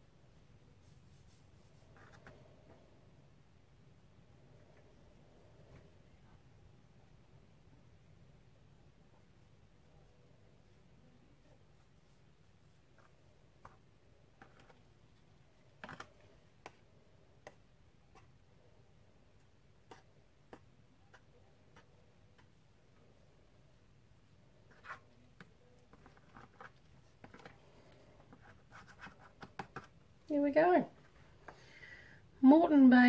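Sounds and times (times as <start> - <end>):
wooden stick tapping and scraping: 14.4 - 14.8, 24.7 - 30.0.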